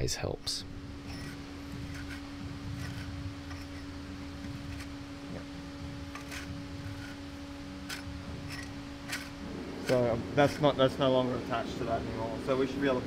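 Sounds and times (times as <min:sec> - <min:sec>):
low hum: 0:00.0 - 0:13.0
metal parts clicking and tapping: 0:01.1 - 0:05.0, 0:06.1 - 0:07.2, 0:07.8 - 0:10.7.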